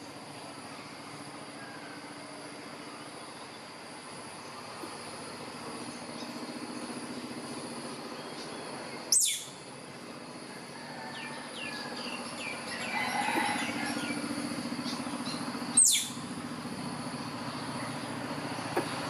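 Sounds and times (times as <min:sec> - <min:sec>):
squirrel high calls: 0:09.1 - 0:09.6, 0:15.7 - 0:16.3.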